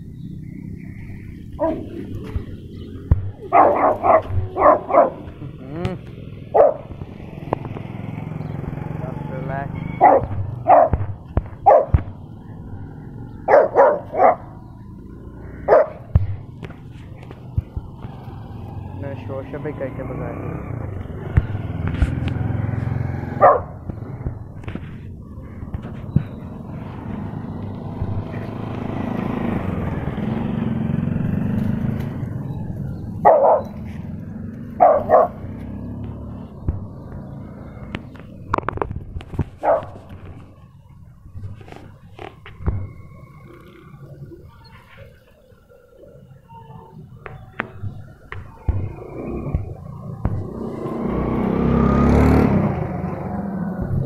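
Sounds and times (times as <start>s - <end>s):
motor vehicle passing: 0.0s - 54.0s
dog barking: 1.6s - 2.1s, 3.4s - 5.3s, 6.5s - 7.0s, 9.8s - 11.0s, 11.6s - 12.0s, 13.5s - 14.6s, 15.6s - 16.1s, 23.4s - 23.8s, 33.2s - 33.8s, 34.8s - 35.4s, 39.6s - 40.0s.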